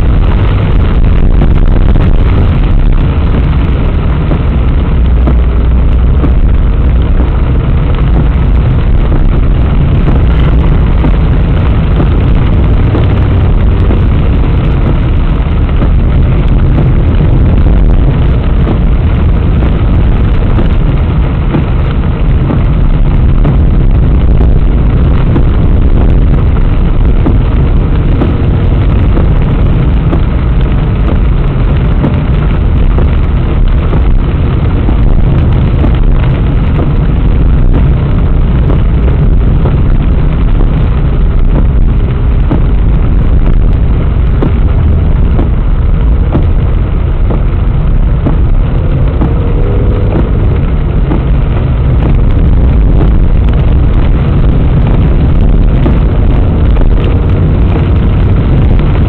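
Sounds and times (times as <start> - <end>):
car engine and tyre rumble: 0.0 - 59.0
light ticks: 4.2 - 59.0.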